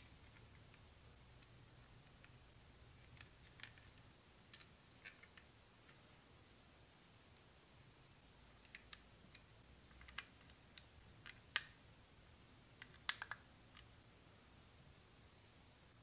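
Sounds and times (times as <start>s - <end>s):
plastic bricks clicking: 12.8s - 13.9s.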